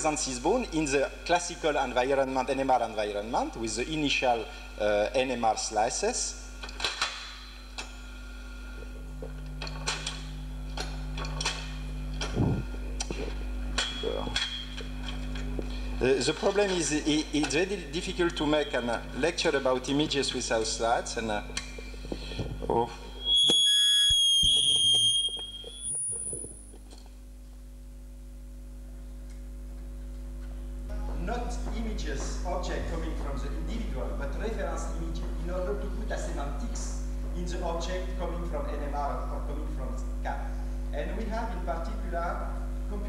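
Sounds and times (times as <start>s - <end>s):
steady electrical hum: 0.0s - 43.0s
high-pitched whistle: 23.0s - 26.6s.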